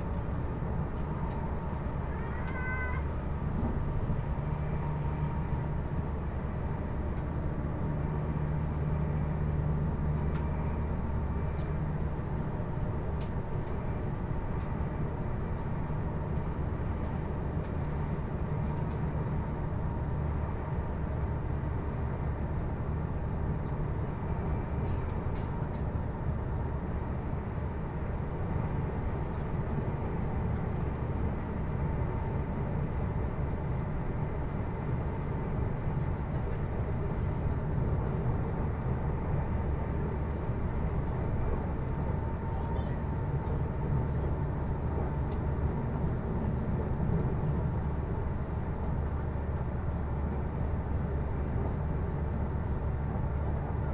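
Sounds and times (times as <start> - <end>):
train interior rumble and hum: 0.0 - 53.9.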